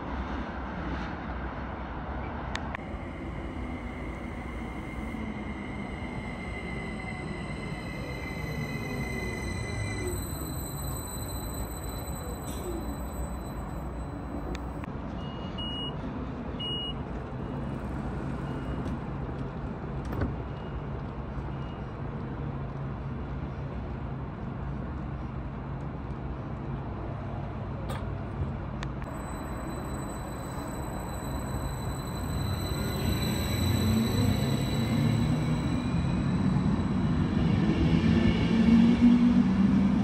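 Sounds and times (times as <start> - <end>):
electric train droning: 2.7 - 14.9, 17.0 - 19.7, 29.0 - 40.0
short high beeps: 29.1 - 37.3.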